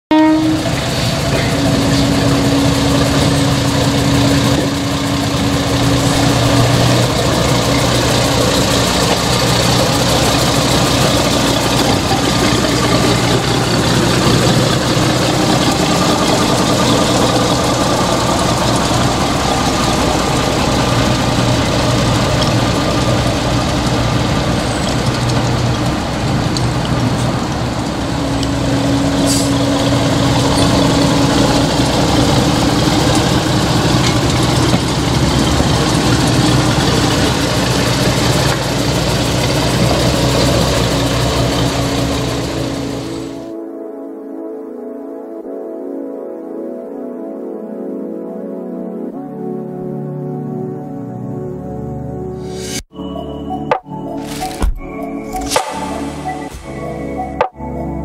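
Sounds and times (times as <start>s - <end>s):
diesel locomotive engine humming: 0.1s - 43.5s, 52.4s - 58.0s.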